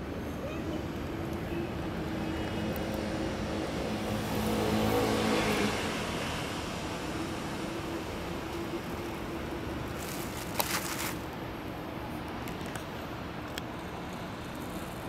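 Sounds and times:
low rumble of traffic: 0.0s - 15.0s
vehicle passing by: 1.1s - 11.2s.

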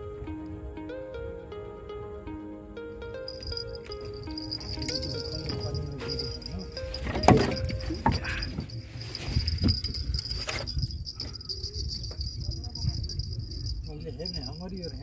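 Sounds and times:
insects droning: 3.4s - 15.0s.

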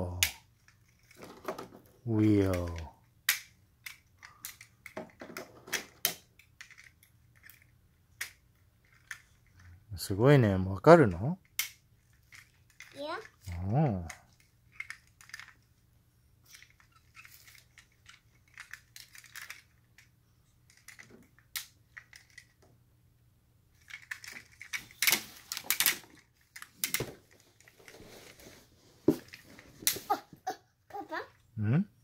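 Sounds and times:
plastic toy clicking and snapping: 2.5s - 5.0s.

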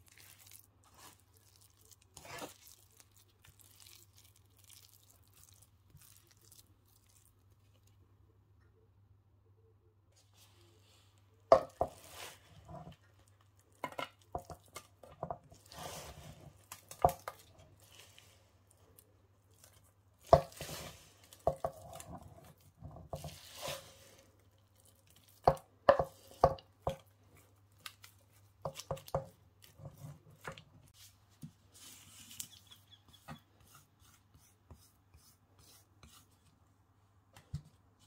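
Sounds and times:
sticky mixture squelching: 0.0s - 8.2s, 11.9s - 31.1s
wooden spoon scraping a pan: 2.1s - 2.7s, 10.4s - 13.1s, 13.8s - 18.5s, 19.7s - 24.5s, 28.6s - 31.1s, 31.7s - 36.5s
faint low hum: 7.0s - 11.5s.

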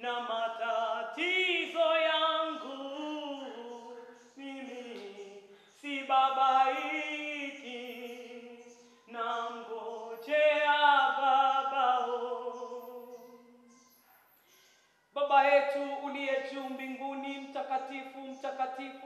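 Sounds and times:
woman singing unaccompanied: 0.0s - 13.9s, 15.2s - 19.0s.

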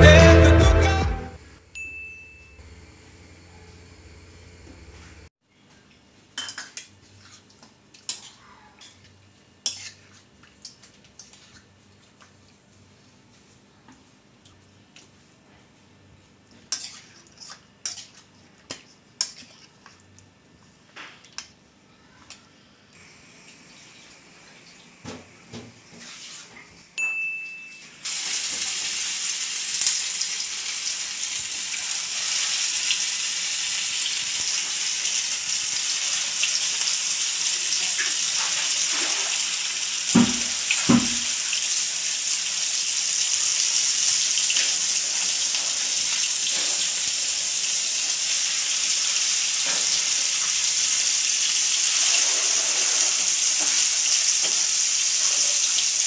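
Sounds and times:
chicken sizzling in hot oil: 28.0s - 56.0s.

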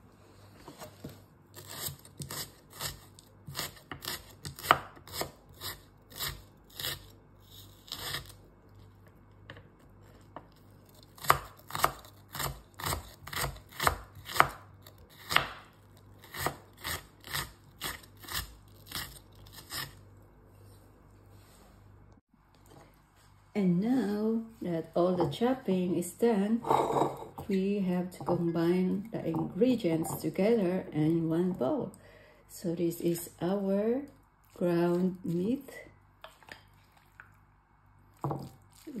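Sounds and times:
knife chopping on wooden board: 1.7s - 7.0s, 11.2s - 15.7s.

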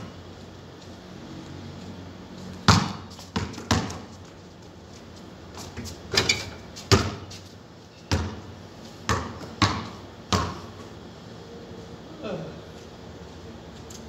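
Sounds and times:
basketball bouncing on concrete: 2.6s - 4.4s, 5.5s - 7.4s, 8.0s - 10.9s.

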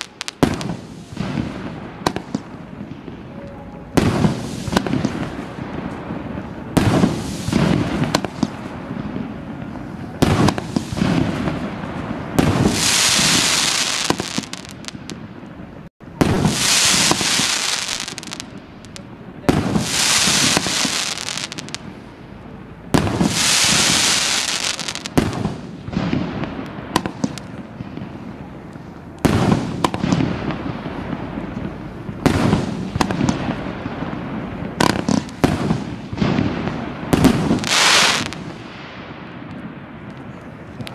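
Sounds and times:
crackling firework glitter: 0.0s - 40.9s
firework shells bursting: 9.6s - 15.3s, 16.2s - 21.9s.

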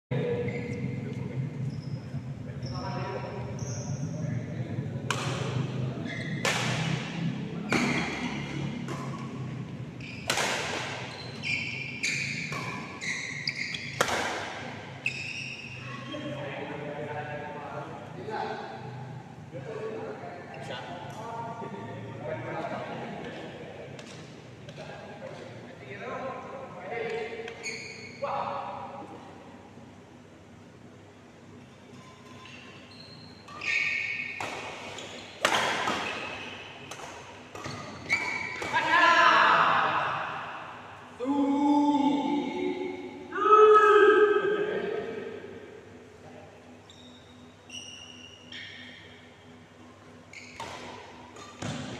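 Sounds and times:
court shoes squeaking: 0.2s - 16.4s, 27.0s - 28.3s, 31.8s - 38.9s, 46.7s - 51.9s
racket smacking shuttlecock: 10.2s - 11.0s, 13.8s - 14.8s, 34.4s - 38.8s.

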